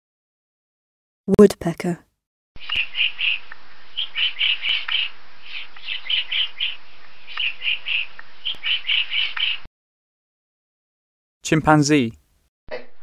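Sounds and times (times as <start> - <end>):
woodpecker calling: 2.6 - 9.7.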